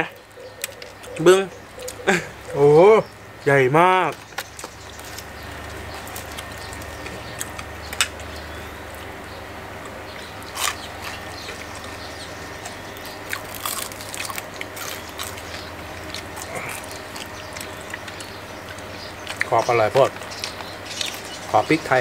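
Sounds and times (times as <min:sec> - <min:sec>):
low hum: 0:00.0 - 0:22.0
crunching fried food: 0:04.1 - 0:09.2, 0:09.8 - 0:22.0.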